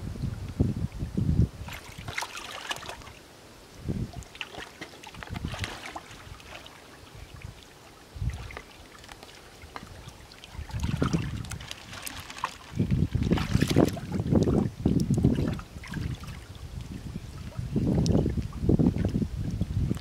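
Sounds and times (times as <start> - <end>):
hands splashing in shallow water: 1.6 - 3.2, 4.2 - 6.9, 8.3 - 16.4.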